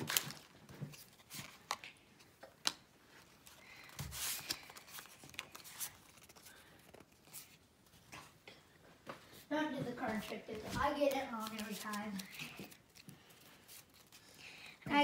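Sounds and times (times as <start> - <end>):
trading cards rustling: 0.0 - 8.4, 10.0 - 15.0.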